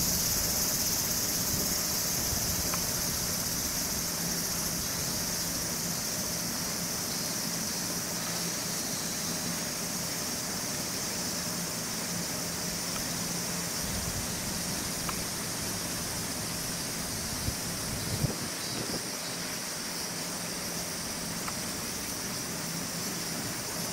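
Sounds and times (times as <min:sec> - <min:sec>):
high-pitched insect chorus: 0:00.0 - 0:23.9
faint clicks: 0:21.4 - 0:21.6.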